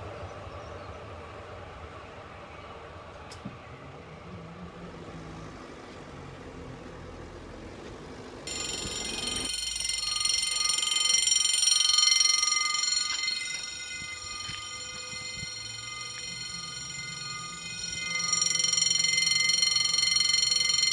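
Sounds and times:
electric train rumbling: 0:00.0 - 0:20.9
level crossing warning bell: 0:08.4 - 0:20.9.

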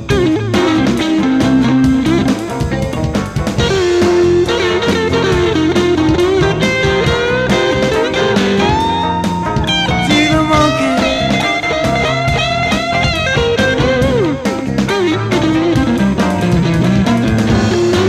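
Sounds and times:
bass: 0:00.0 - 0:18.0
lead guitar: 0:00.0 - 0:18.0
drum beat: 0:09.9 - 0:13.2.

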